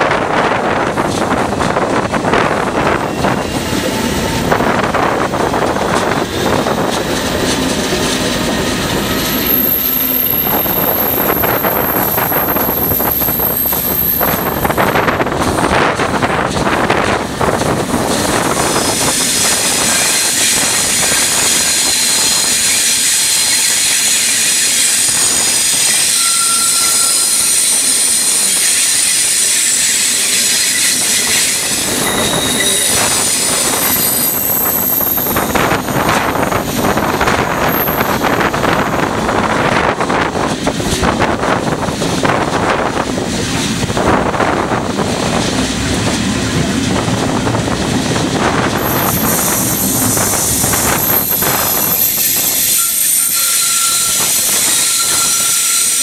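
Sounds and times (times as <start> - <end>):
train rolling rumble: 0.0 - 56.0
train wheels squealing: 2.8 - 15.3, 18.2 - 39.0, 48.8 - 56.0.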